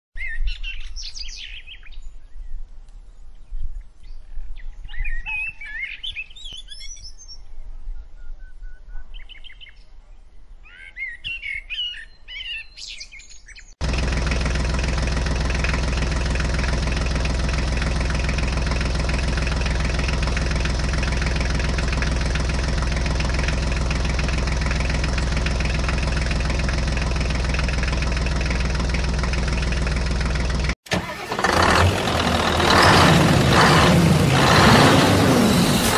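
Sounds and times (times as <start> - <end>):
small birds chirping: 0.2 - 13.8
loud engine running: 13.8 - 35.9.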